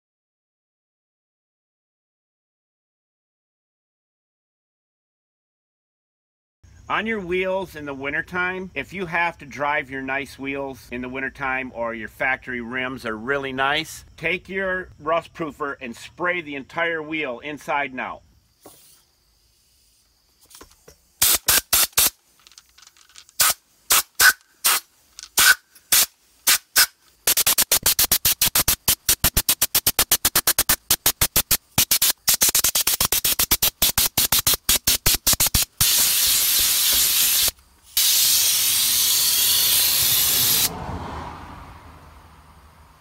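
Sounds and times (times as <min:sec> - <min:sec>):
spray gun hissing: 0:21.2 - 0:22.2, 0:23.4 - 0:40.7.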